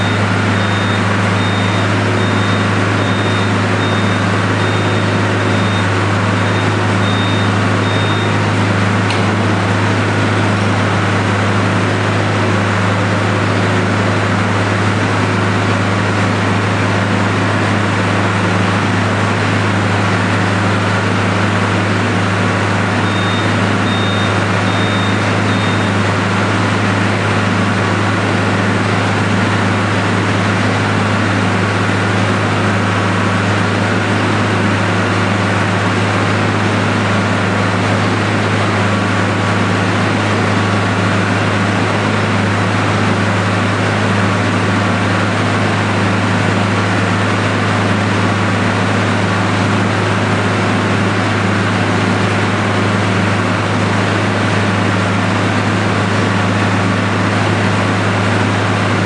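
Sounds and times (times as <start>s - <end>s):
short high beeps: 0.0s - 8.4s, 23.0s - 26.0s
feed mixer machine drone: 0.0s - 59.0s.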